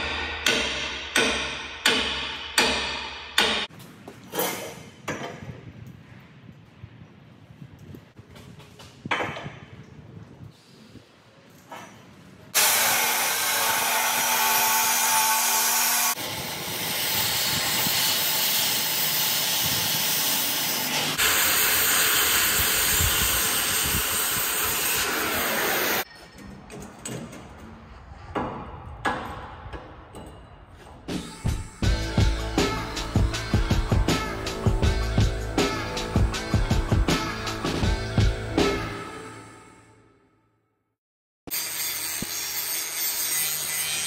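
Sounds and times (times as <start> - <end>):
cutting torch hissing: 16.2 - 26.0.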